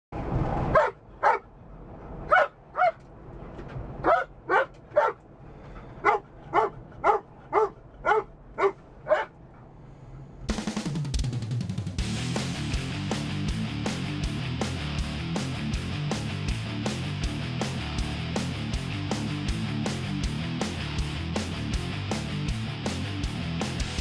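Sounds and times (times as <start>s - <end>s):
car rumble: 0.2s - 10.5s
dog barking: 0.7s - 1.5s, 2.3s - 3.0s, 4.0s - 5.2s, 6.0s - 9.4s.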